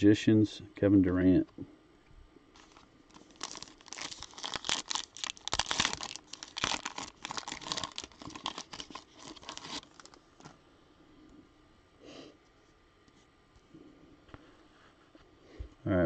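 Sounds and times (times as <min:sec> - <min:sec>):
foil wrapper crinkling: 0:02.5 - 0:10.6.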